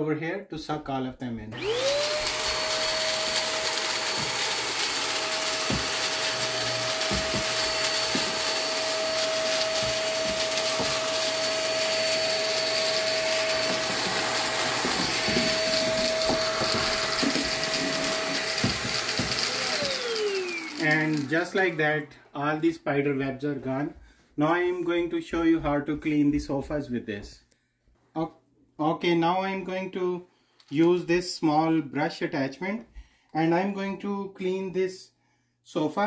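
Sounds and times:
vacuum motor whine: 1.6 - 21.8.

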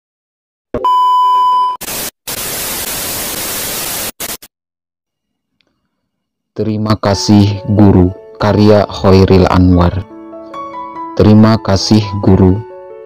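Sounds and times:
tv static hiss: 1.8 - 4.5
click: 5.6 - 5.8.

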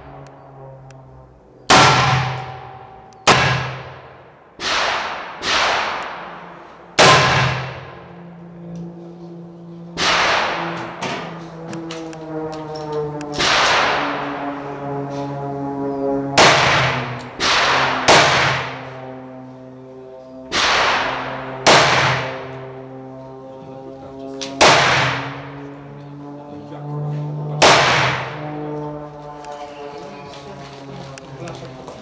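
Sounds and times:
steady low hum: 0.0 - 32.0
gunshots echoing: 1.7 - 7.9, 10.0 - 11.3, 13.4 - 14.4, 16.4 - 18.9, 20.5 - 22.5, 24.6 - 25.6, 27.6 - 28.4.

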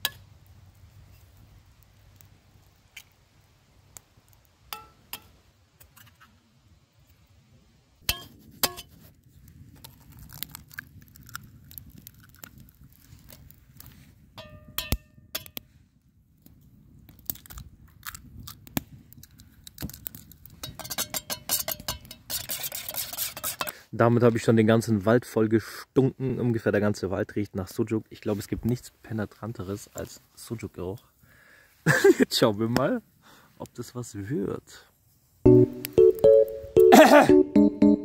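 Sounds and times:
metal pots clinking and knocking: 20.6 - 22.6
whisking eggs in steel bowl: 20.7 - 23.7.

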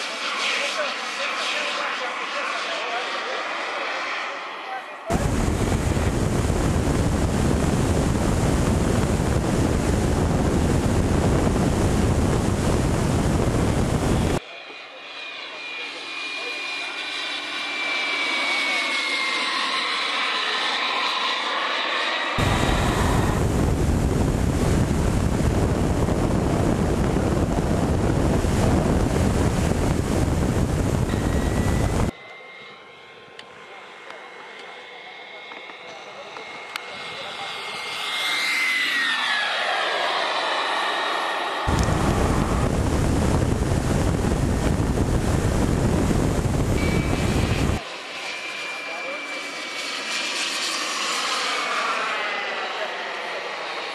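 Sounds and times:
faint thin whine: 4.9 - 53.9
wind buffeting microphone: 5.1 - 14.4, 22.4 - 32.1, 41.6 - 47.8.

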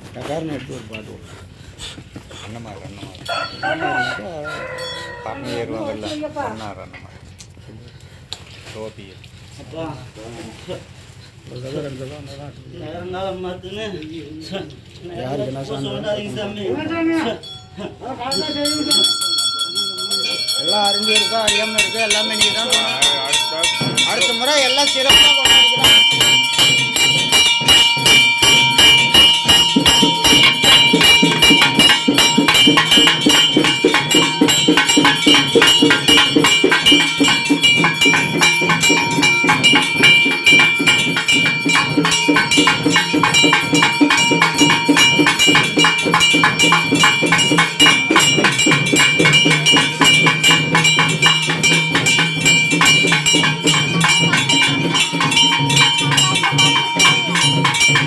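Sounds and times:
percussion beating fast rhythm: 0.0 - 6.9, 9.7 - 58.0
temple bells clanging: 3.2 - 6.0, 16.0 - 58.0.

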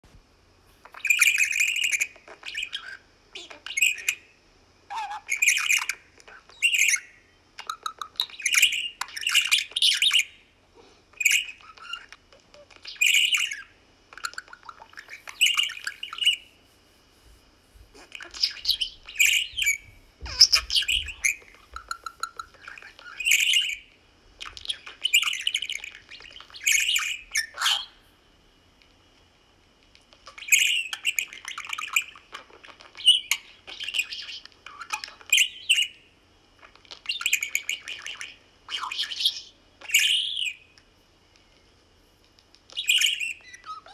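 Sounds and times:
budgerigars chirping and chattering: 0.9 - 4.2, 4.9 - 10.4, 11.2 - 16.5, 17.9 - 27.9, 30.1 - 36.0, 36.6 - 40.6, 42.7 - 43.9.

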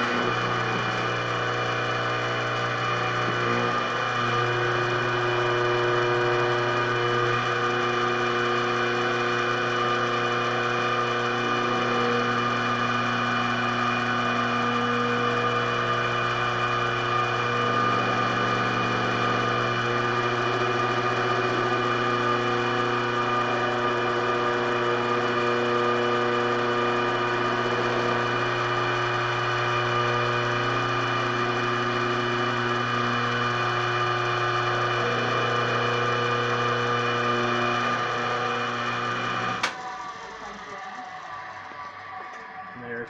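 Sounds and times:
spindle machine whine: 0.0 - 43.0.

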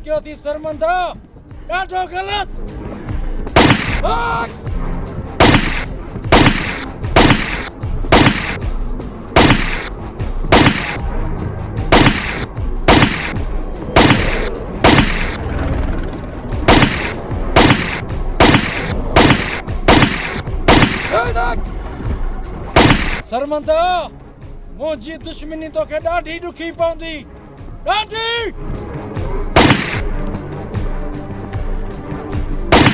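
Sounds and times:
background music: 0.0 - 32.9
single gunshots: 3.5 - 4.1, 5.4 - 8.6, 9.4 - 9.9, 10.5 - 11.0, 11.9 - 13.4, 14.0 - 15.4, 16.7 - 21.3, 22.8 - 23.2, 29.6 - 30.1.

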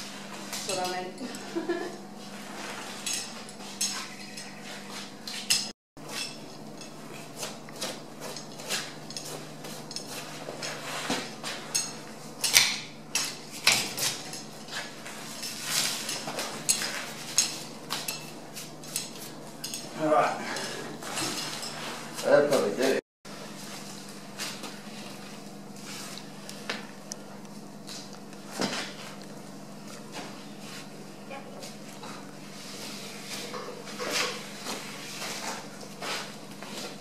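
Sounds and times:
steady low hum: 0.0 - 37.0
knife clinking and scraping: 3.0 - 10.8.

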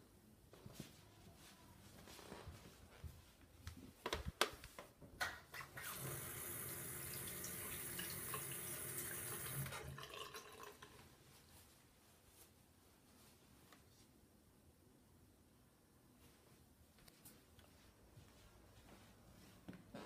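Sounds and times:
water running: 5.5 - 11.2.

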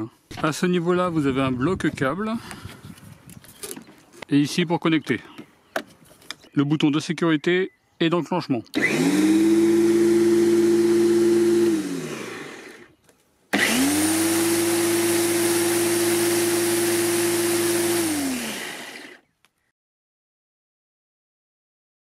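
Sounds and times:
electric lawnmower motor humming: 8.7 - 19.3.

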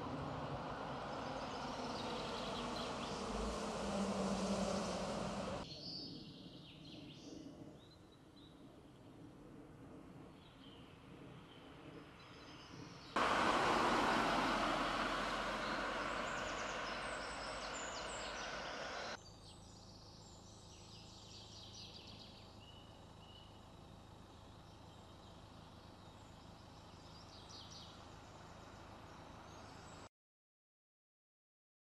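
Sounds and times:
car rushing by: 0.0 - 5.6, 13.2 - 19.2
birds chirping: 0.0 - 8.6, 10.3 - 30.0.

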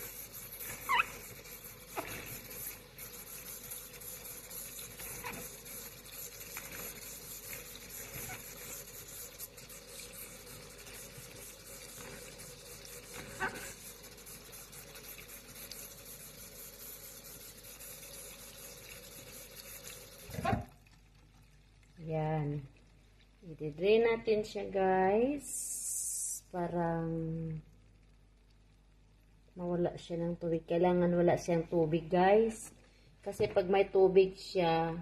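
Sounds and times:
hands rubbing fish in water: 0.0 - 17.2
tap water running: 0.0 - 22.0.

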